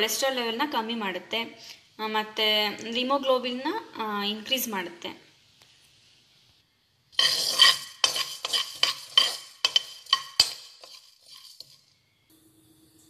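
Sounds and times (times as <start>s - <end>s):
spoon scraping seeds in pan: 7.2s - 12.0s.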